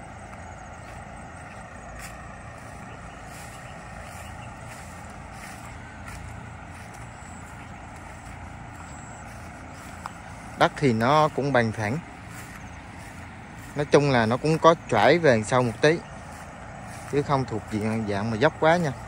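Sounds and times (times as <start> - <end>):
constant hiss: 0.0 - 19.0
low uneven rumble: 0.0 - 19.0.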